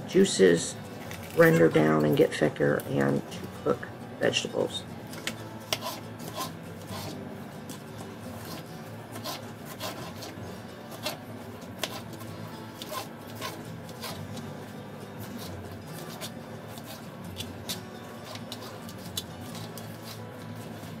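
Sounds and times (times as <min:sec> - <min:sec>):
quiet background music: 0:00.0 - 0:21.0
knife chopping on plastic board: 0:05.2 - 0:07.2, 0:08.4 - 0:14.2.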